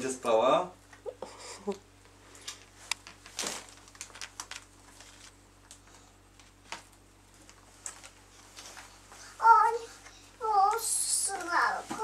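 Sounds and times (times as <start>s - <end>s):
faint steady hum: 0.0s - 12.0s
cloth rustling: 10.6s - 12.0s.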